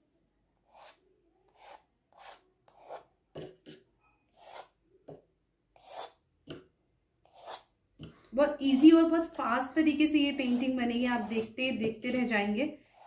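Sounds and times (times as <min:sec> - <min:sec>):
paint tool scratching: 0:00.6 - 0:04.8, 0:05.8 - 0:06.2, 0:07.2 - 0:08.9, 0:10.3 - 0:11.6.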